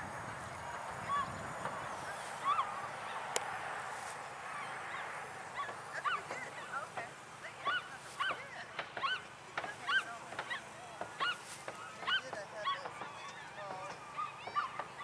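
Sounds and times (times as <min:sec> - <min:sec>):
dog whining: 0:02.4 - 0:03.2
dog yelping: 0:02.4 - 0:03.4, 0:04.5 - 0:06.8, 0:07.6 - 0:15.0.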